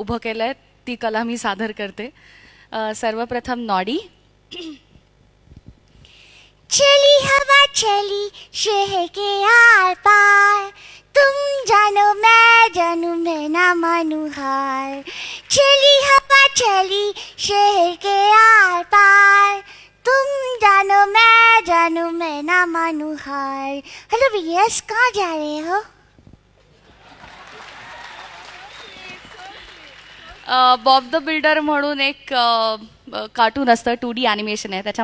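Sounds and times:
woman singing in cartoon voice: 6.7 - 25.8.

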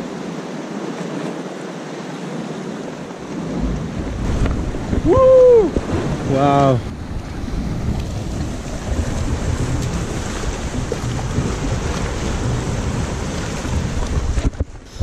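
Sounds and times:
surf washing against rocks: 0.0 - 15.0
wind buffeting microphone: 2.8 - 15.0.

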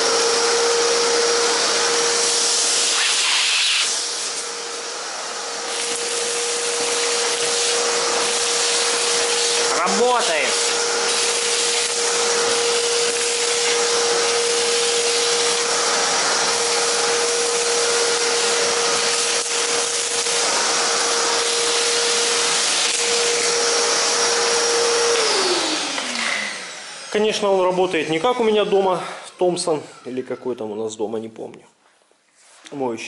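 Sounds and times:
vacuum motor winding down: 0.0 - 29.2
wet and dry vacuum cleaner running: 0.0 - 30.4.

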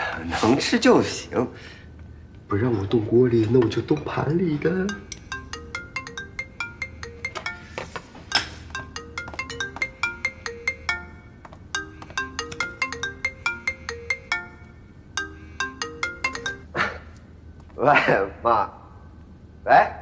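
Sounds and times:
phone ringtone tune: 4.6 - 16.7.

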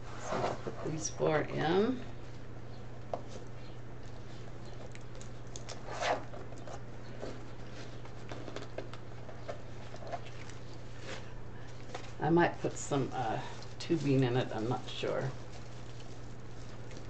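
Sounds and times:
steady low hum: 0.0 - 17.0
ribbon rustling and crinkling: 2.2 - 17.0.

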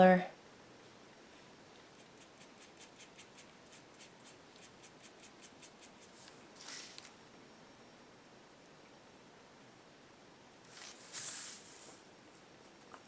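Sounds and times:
scratchy paintbrush strokes: 1.3 - 7.2.

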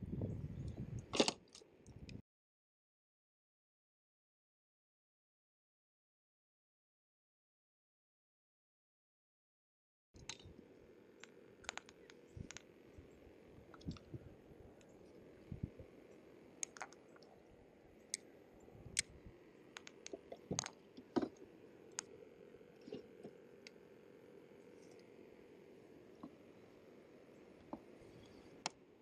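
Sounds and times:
faint steady hiss: 10.2 - 29.0
fishing gear clicking and tapping: 19.8 - 21.4.

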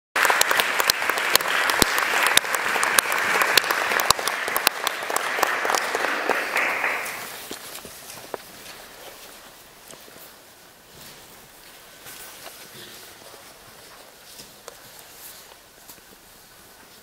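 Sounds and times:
audience applauding: 0.2 - 8.1.

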